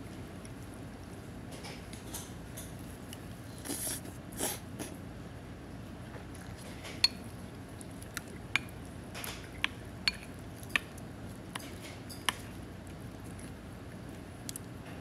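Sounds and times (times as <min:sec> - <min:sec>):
steady background hum: 0:00.0 - 0:15.0
spoon tapping ceramic bowl: 0:10.1 - 0:10.9.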